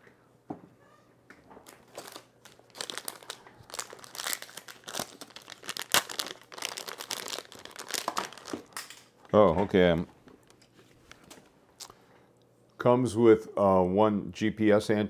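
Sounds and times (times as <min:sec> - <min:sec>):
plastic packaging crinkling: 0:01.6 - 0:09.1.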